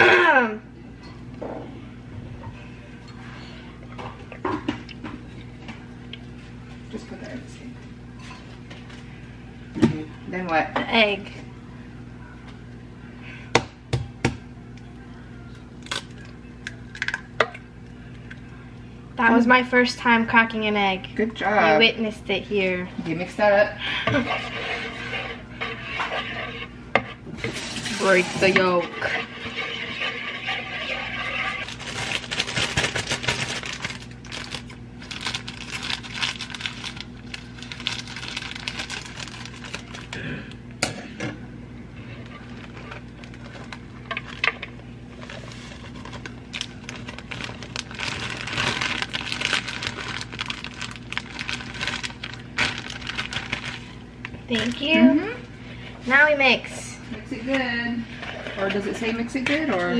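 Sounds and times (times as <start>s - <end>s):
plastic pouch crinkling: 31.6s - 40.2s, 42.4s - 44.4s, 45.2s - 54.0s.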